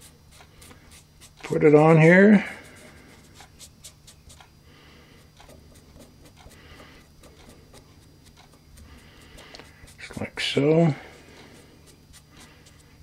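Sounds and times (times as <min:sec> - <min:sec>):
pen tip scratching on metal: 0:11.9 - 0:13.0.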